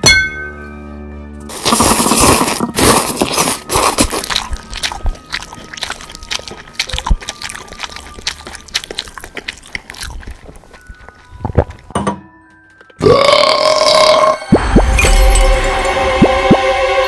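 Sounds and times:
crunching and chewing: 1.5s - 11.9s.

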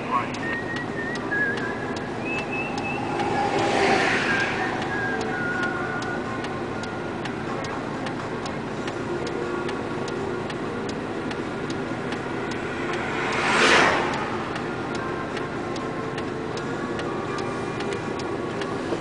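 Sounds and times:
vehicle passing whoosh: 0.3s - 6.6s, 11.2s - 16.0s.

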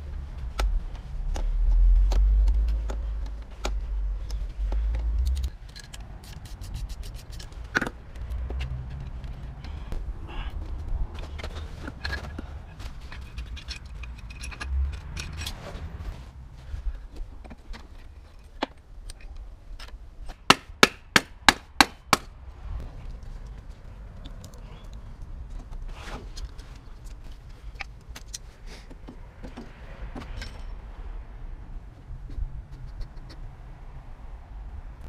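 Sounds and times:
metal parts and tools clinking: 5.2s - 7.9s, 11.2s - 15.8s, 30.2s - 30.8s
hammer striking wooden block: 20.5s - 22.3s.

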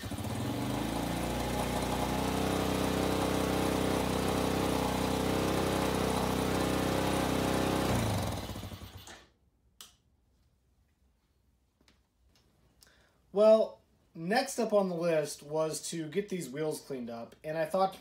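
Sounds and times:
engine idling high: 0.0s - 9.1s
engine shutting off: 0.0s - 9.2s.

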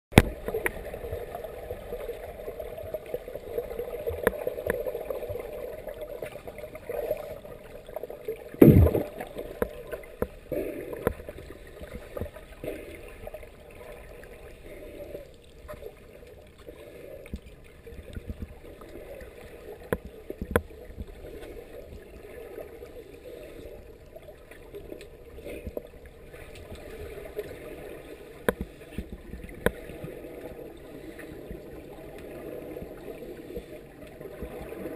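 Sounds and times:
loud low thump: 8.6s - 9.1s
underwater regulator bubbling: 8.6s - 9.3s.

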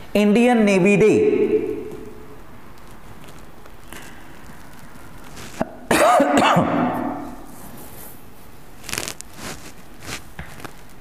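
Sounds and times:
man coughing: 5.6s - 7.1s.

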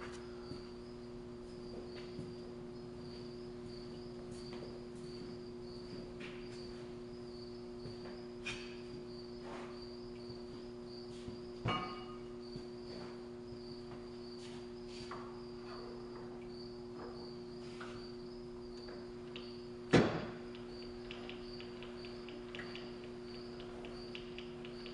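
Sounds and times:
steady low hum: 0.0s - 24.9s
loud knock with short ring: 11.7s - 12.3s.

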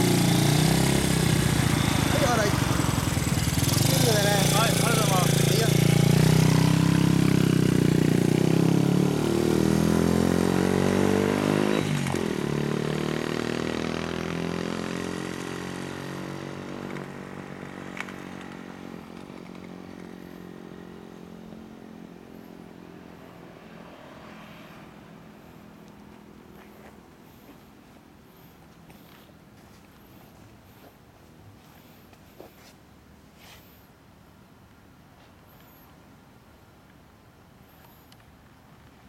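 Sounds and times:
minibike engine accelerating: 0.0s - 25.8s.

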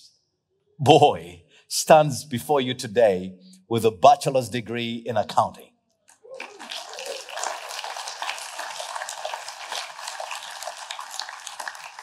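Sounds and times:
crowd applauding: 6.3s - 12.0s.

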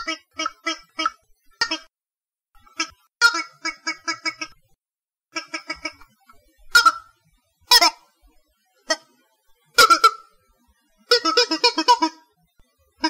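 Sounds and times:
wah-wah toy warbling blasts: 0.0s - 1.9s, 6.7s - 8.1s, 9.8s - 10.3s, 11.1s - 12.3s.

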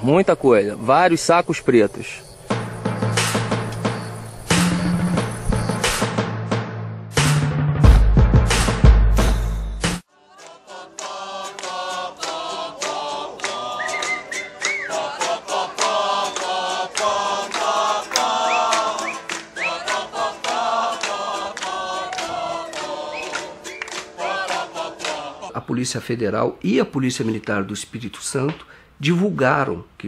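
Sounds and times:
choir singing: 10.1s - 25.6s
rising whistle-like glides: 13.6s - 15.2s, 18.2s - 19.9s, 22.6s - 24.5s.

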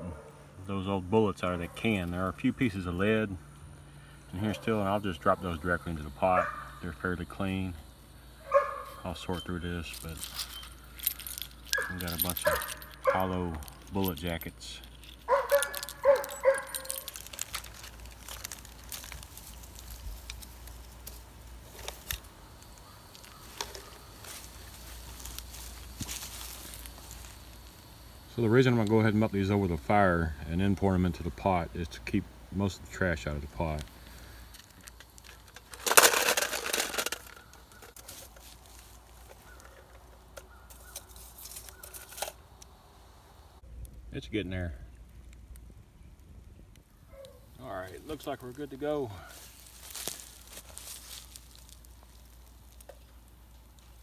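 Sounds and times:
dog barking: 6.4s - 6.8s, 8.4s - 9.0s, 11.7s - 13.3s, 15.3s - 16.9s
light metal clinks: 9.9s - 17.9s
metal sinkers clattering into can: 9.9s - 19.0s, 35.2s - 38.4s
plastic bag crinkling: 9.9s - 27.4s, 34.0s - 40.1s, 49.4s - 52.8s.

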